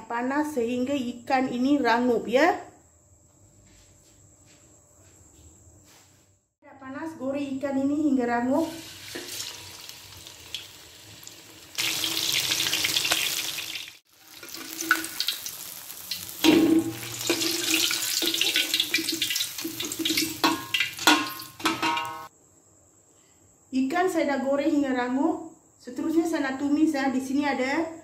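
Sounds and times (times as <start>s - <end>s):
fish sizzling in hot oil: 8.7s - 22.3s
metal spatula scraping wok: 16.3s - 18.8s.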